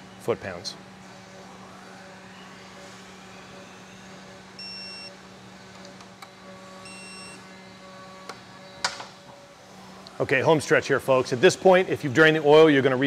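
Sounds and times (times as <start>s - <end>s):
steady low hum: 0.0s - 13.0s
torque wrench beeping: 4.6s - 5.1s, 6.8s - 7.4s.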